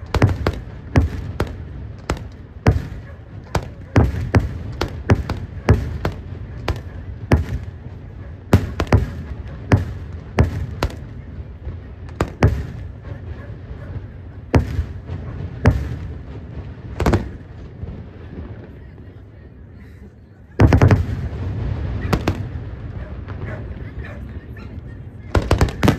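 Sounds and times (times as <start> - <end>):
fireworks bangs: 0.0 - 19.4, 20.5 - 25.9.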